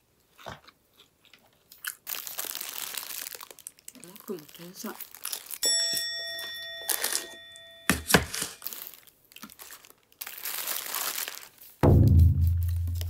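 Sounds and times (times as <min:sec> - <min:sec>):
paper wrapper crinkling: 0:01.9 - 0:05.8, 0:06.8 - 0:13.0
bell-like chime: 0:05.6 - 0:08.6
deep booming tone: 0:11.8 - 0:13.0.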